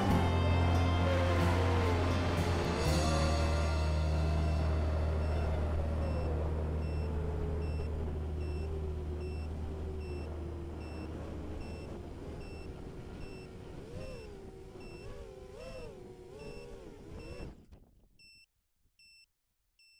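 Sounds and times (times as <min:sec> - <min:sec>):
drone motors whining: 0:00.0 - 0:17.7
faint electronic beep: 0:04.4 - 0:15.1.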